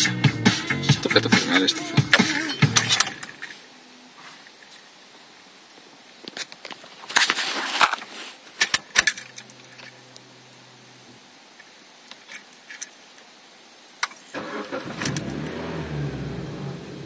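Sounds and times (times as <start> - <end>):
faint steady hum: 0.0 - 17.0
car engine cranking: 0.9 - 3.5, 14.3 - 17.0
car keys jangling and clicking: 2.1 - 3.6.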